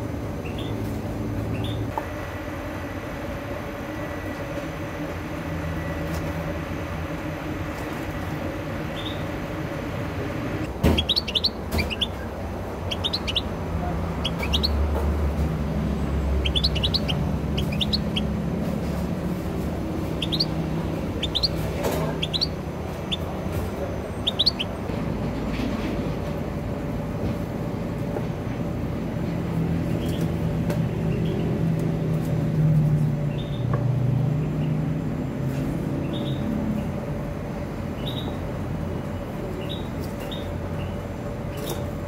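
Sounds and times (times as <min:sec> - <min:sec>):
songbird chirping: 0:10.8 - 0:15.0, 0:15.6 - 0:18.6, 0:19.5 - 0:24.8.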